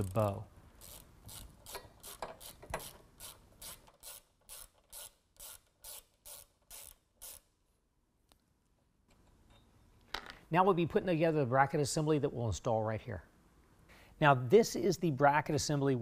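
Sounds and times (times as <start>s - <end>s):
hand ratchet clicking: 0.0s - 7.5s.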